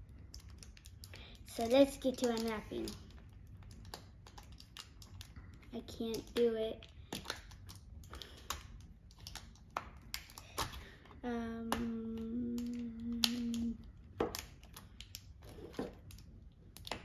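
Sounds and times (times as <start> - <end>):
child humming low note: 11.2 - 13.8.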